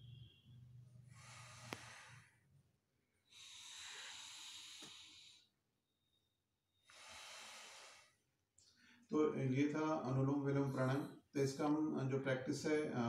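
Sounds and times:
hissing nostril breaths: 1.1s - 2.4s, 3.2s - 5.5s, 6.8s - 8.2s.

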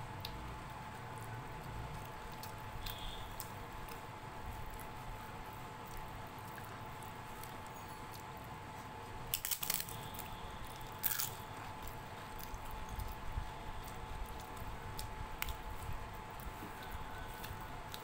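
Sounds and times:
soft squishing and chewing: 0.1s - 18.0s
crisp flatbread crunching: 0.3s - 18.0s.

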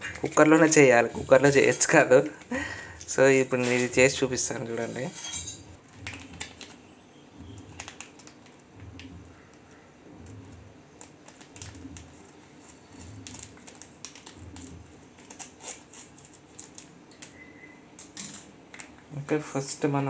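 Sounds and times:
scissors snipping plastic packet: 7.7s - 9.7s, 10.9s - 17.4s.

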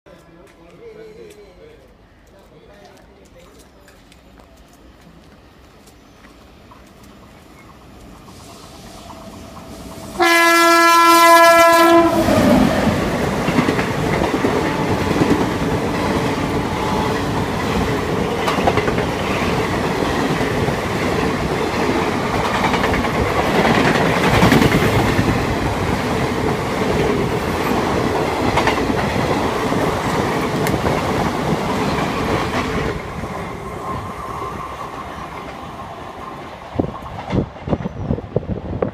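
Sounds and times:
locomotive horn blast: 10.2s - 12.6s
train wheels clattering over rail joints: 13.4s - 25.4s.

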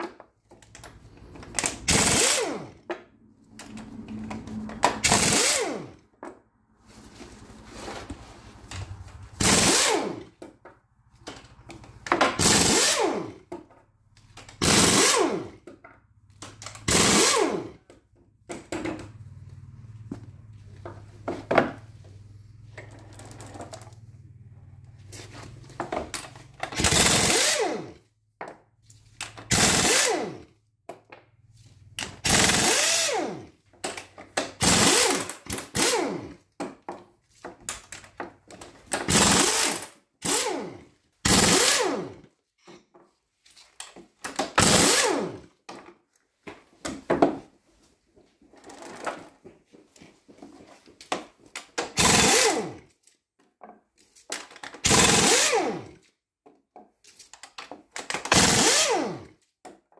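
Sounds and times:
air wrench bursts: 1.5s - 2.8s, 3.6s - 6.0s, 9.4s - 10.3s, 12.4s - 13.4s, 14.6s - 15.6s, 16.6s - 17.8s, 26.7s - 28.0s, 29.5s - 30.4s, 32.2s - 33.4s, 34.6s - 36.4s, 39.0s - 42.1s, 44.6s - 45.4s, 52.0s - 52.8s, 54.8s - 56.0s, 58.2s - 59.3s.

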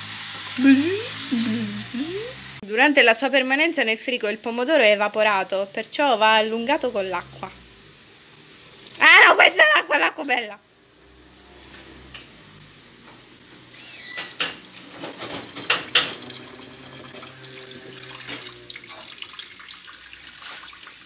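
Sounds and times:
tap water running into sink: 8.7s - 9.0s, 14.0s - 21.0s.

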